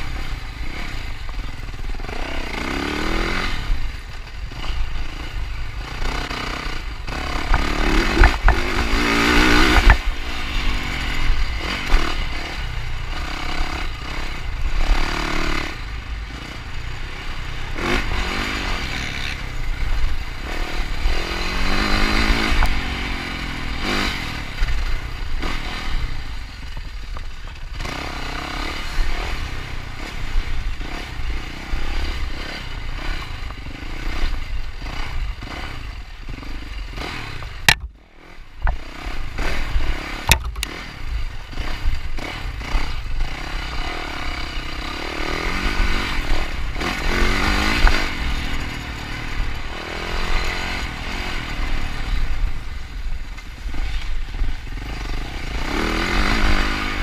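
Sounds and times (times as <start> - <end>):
dirt bike engine revving: 0.0 - 57.0
sharp knocks from bike: 7.4 - 9.0, 9.6 - 10.1, 37.4 - 38.0, 40.2 - 40.8.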